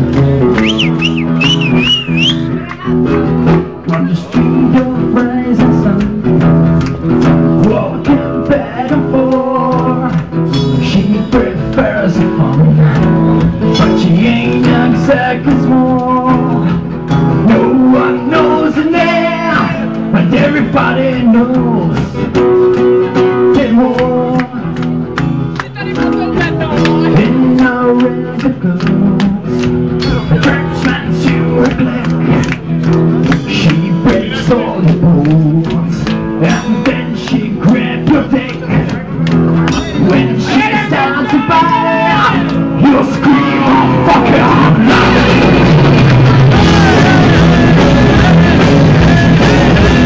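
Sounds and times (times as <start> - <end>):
live band playing: 0.0 - 50.0
person singing: 7.6 - 16.8, 17.4 - 22.1, 25.7 - 32.5, 33.3 - 50.0.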